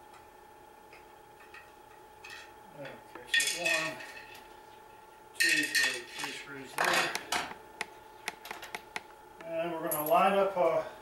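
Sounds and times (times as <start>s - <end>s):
metal tools clinking on table: 3.3s - 4.4s, 5.4s - 7.1s.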